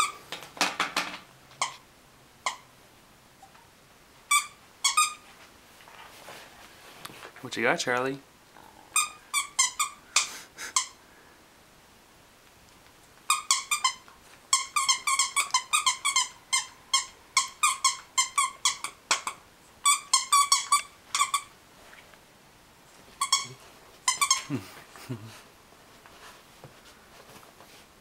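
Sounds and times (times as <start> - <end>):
plush toy squeaking: 2.4 - 2.7, 4.3 - 5.2, 9.0 - 11.0, 13.3 - 21.5, 23.2 - 24.5.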